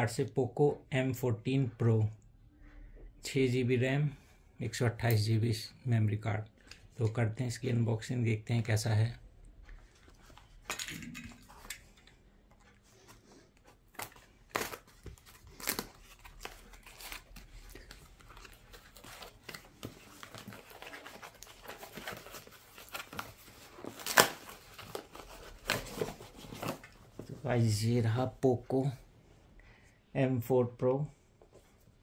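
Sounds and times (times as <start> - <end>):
cardboard and tape ripping: 13.9 - 26.9.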